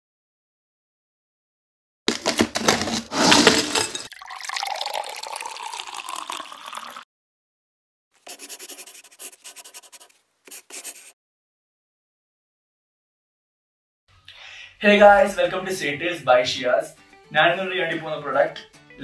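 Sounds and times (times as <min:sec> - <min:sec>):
liquid gurgling into a flask: 0:04.1 - 0:07.0
quick scratching strokes: 0:08.2 - 0:11.2.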